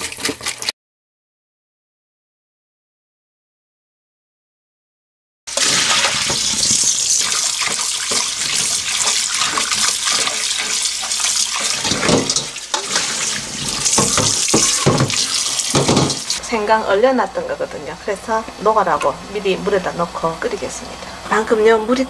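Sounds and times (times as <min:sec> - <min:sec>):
hand rinsing chicken feet splashing: 0:05.5 - 0:16.4
tap water running into steel bowl: 0:05.5 - 0:16.4
water pouring into strainer: 0:05.5 - 0:16.4
sharp knocks: 0:13.9 - 0:16.3.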